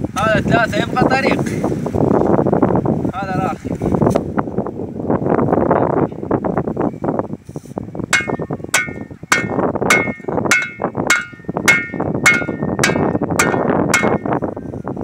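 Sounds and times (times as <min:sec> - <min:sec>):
shovel hammering wooden stake: 0:08.2 - 0:14.4.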